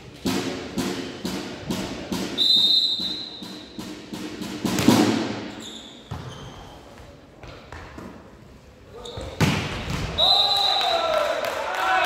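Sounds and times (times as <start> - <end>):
voices in sports hall: 0.0 - 12.0
referee's whistle blowing: 2.4 - 3.6, 10.2 - 11.0.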